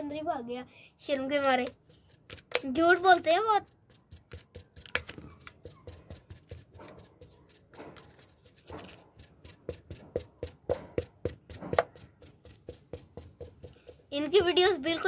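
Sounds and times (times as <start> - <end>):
plastic bottle crackling: 1.3 - 7.1
rustling scrapes: 3.6 - 13.0.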